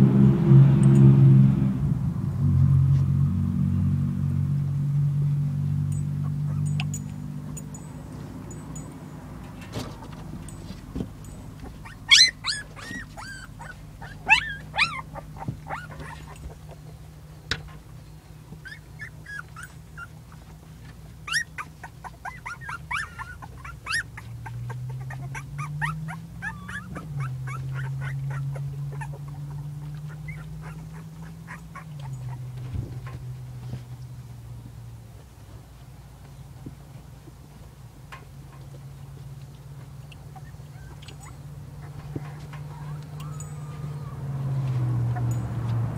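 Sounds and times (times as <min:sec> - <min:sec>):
low steady hum: 0:00.0 - 0:45.7
puppies whimpering and yipping: 0:06.0 - 0:08.9, 0:09.8 - 0:17.1, 0:18.5 - 0:33.8, 0:39.6 - 0:45.7.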